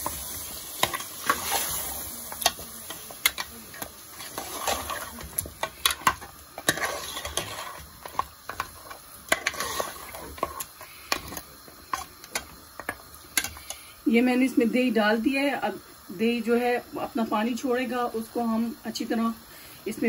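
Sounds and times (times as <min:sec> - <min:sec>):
wet stirring of thick gravy: 0:00.8 - 0:13.6
metal spoon clinking and scraping pot: 0:00.8 - 0:13.8.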